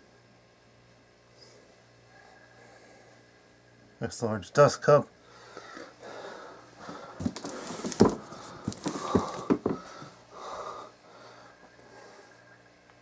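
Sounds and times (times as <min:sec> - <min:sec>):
knocks on cardboard box: 0:07.2 - 0:09.9.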